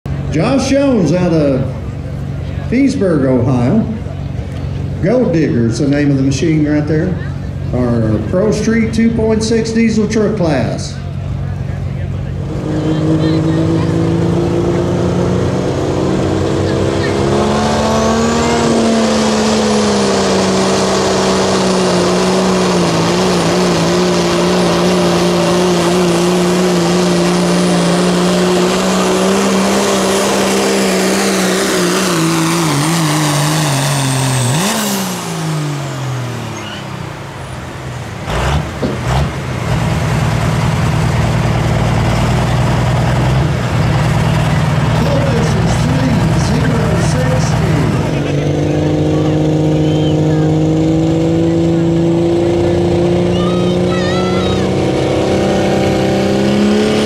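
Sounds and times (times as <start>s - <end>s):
diesel engine at high revs: 0.0s - 57.0s
engine knocks: 37.9s - 49.4s
turbo whistle: 49.8s - 50.3s.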